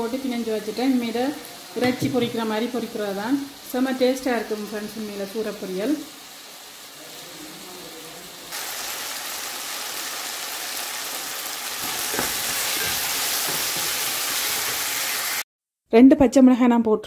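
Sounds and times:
oil hissing in pan: 0:00.0 - 0:15.5
vegetables sizzling in pot: 0:00.0 - 0:15.5
spoon stirring and knocking: 0:11.8 - 0:14.9.

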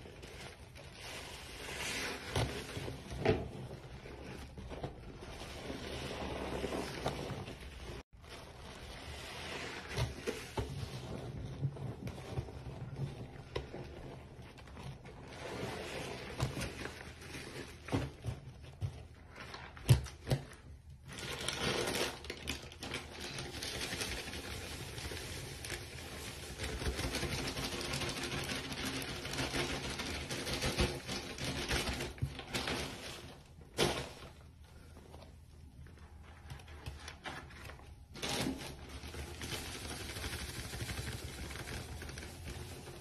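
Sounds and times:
soap suds foaming and crackling: 0:00.0 - 0:31.1.

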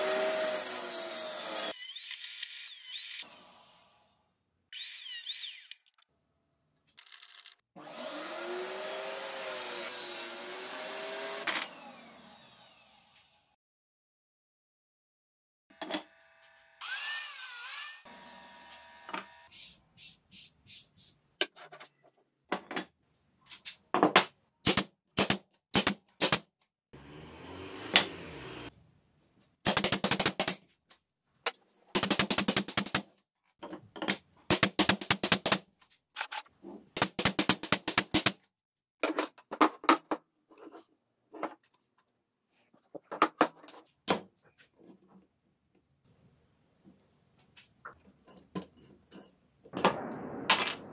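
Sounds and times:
saw blade winding down: 0:00.0 - 0:03.9, 0:16.4 - 0:19.5.

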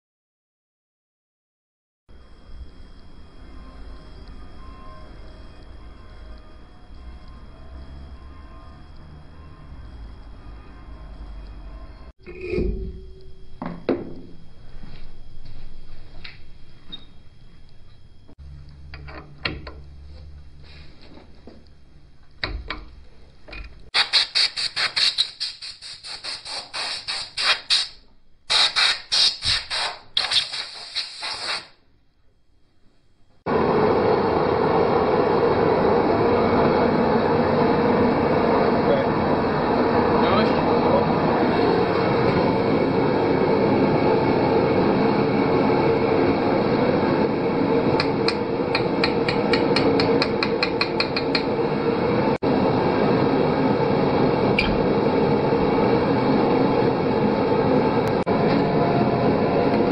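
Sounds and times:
steady rumbling noise: 0:32.0 - 0:59.9
hammer tapping on metal: 0:48.0 - 0:51.5.

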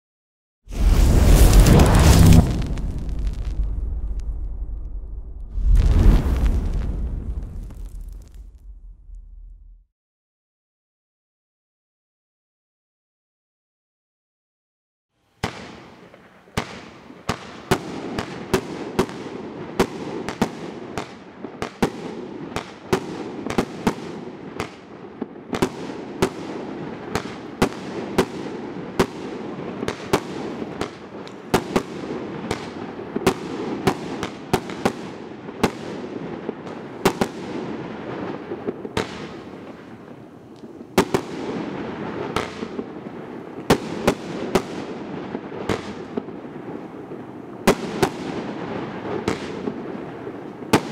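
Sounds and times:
crackle of glittering stars: 0:00.7 - 0:09.9.

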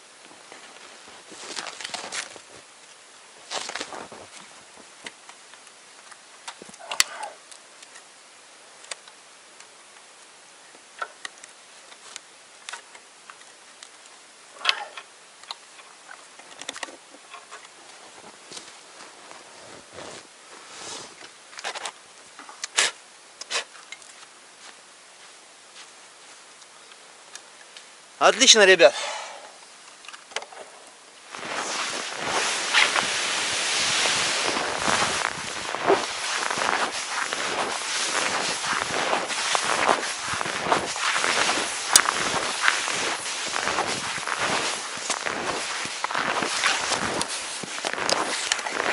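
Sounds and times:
faint clicks: 0:05.0 - 0:08.1
clothing rubbing on microphone: 0:17.9 - 0:21.2, 0:31.2 - 0:48.9
wind on microphone: 0:31.4 - 0:46.0.

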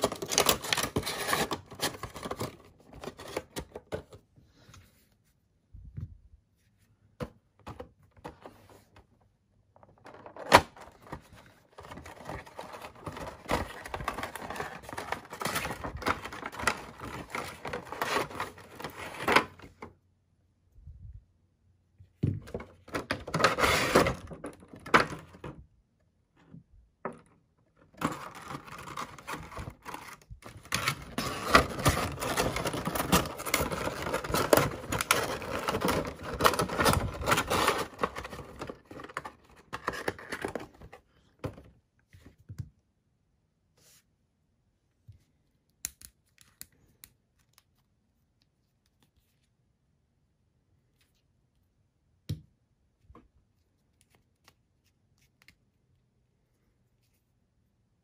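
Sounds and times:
packaging rustling and scraping: 0:00.0 - 0:04.1, 0:10.0 - 0:19.9, 0:22.7 - 0:25.5, 0:27.8 - 0:41.6.

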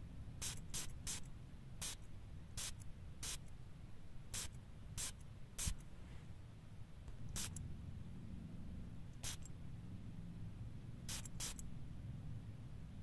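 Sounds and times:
perfume sprayer hissing spritzes: 0:11.1 - 0:11.6.

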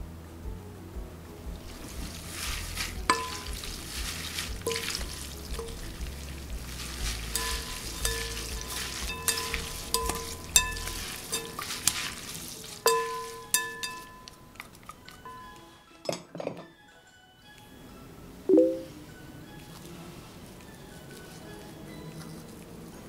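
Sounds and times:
wet squishy food rustling: 0:01.5 - 0:15.6, 0:19.4 - 0:23.0
utensils clinking on glass bowl: 0:02.8 - 0:16.7.

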